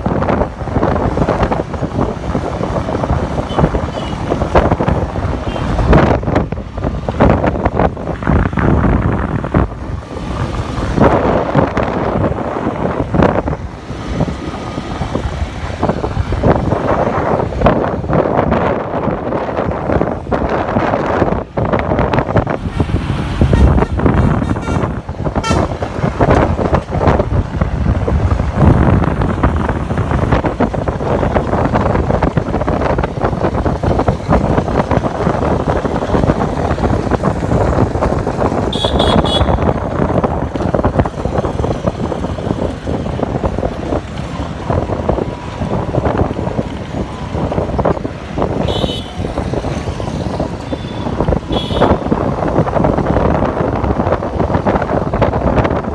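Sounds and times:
road traffic: 0.0 - 55.9
wind on microphone: 0.0 - 55.9
high horn toots: 23.5 - 25.8, 38.7 - 39.7, 48.6 - 49.3, 50.7 - 52.1.

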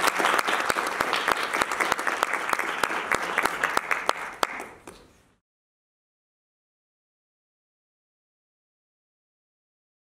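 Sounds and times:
audience applauding: 0.0 - 5.1.

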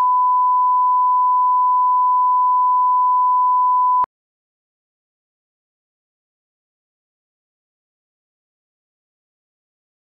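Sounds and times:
steady test tone beep: 0.0 - 4.1.

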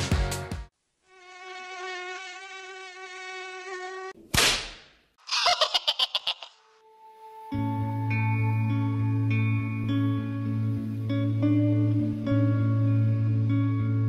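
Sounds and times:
music: 0.0 - 0.7, 6.8 - 14.0
mosquito buzz: 1.0 - 4.2.

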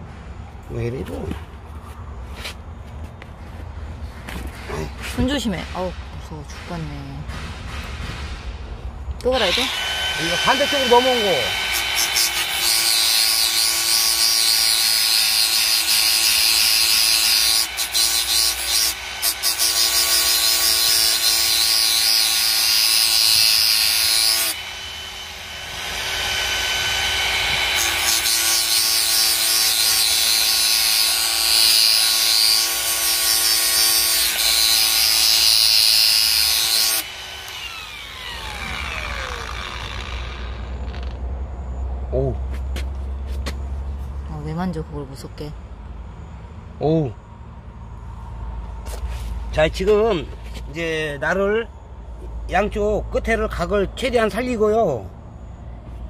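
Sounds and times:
grinder disc spinning down: 9.2 - 30.0, 34.4 - 41.2
angle grinder grinding steel: 9.2 - 41.2.

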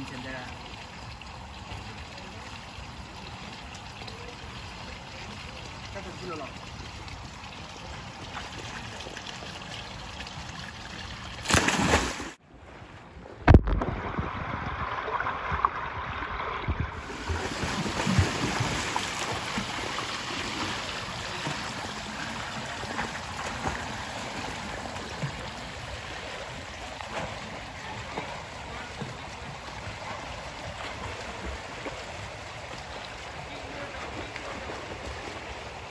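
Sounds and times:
muffled water sound: 0.0 - 35.9
swimmer splashing into pool: 11.4 - 12.4
swimming strokes splashing: 11.4 - 12.4, 17.0 - 35.9.

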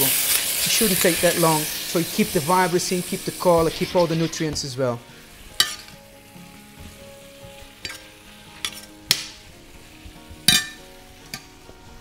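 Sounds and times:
vegetables sizzling in a pan: 0.0 - 12.0
spoon clinking against pan: 10.5 - 10.8.

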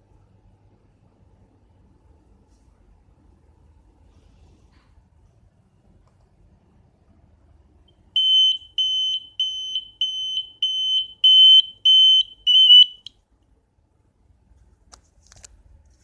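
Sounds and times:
high shrill buzzer beeps: 8.2 - 13.1.

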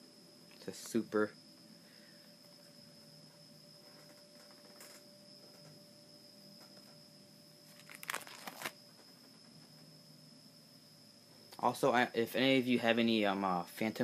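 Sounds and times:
faint high whine: 0.0 - 14.0
plastic sleeves rustling and crinkling: 7.7 - 8.8.

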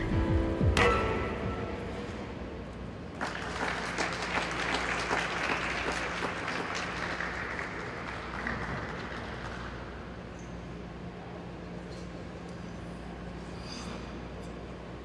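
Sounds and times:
small audience applauding: 3.1 - 10.1.

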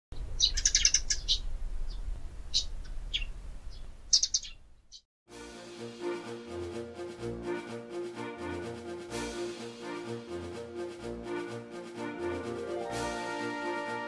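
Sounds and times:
birds chirping: 0.2 - 5.0
music: 5.3 - 14.0.

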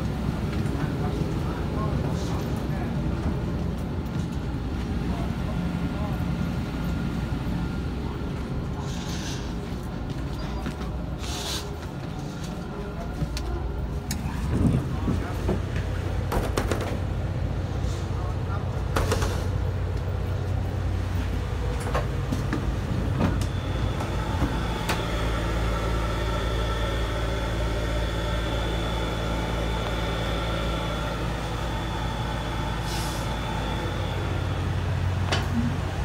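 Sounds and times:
diesel railcar idling drone: 0.0 - 36.0
faint high whine: 23.2 - 35.4.

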